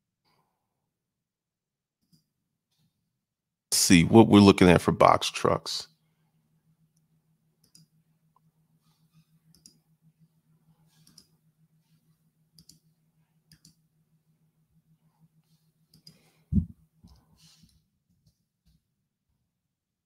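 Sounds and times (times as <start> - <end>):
mouse and keyboard clicks: 11.0 - 11.3, 12.6 - 12.8, 13.5 - 13.8.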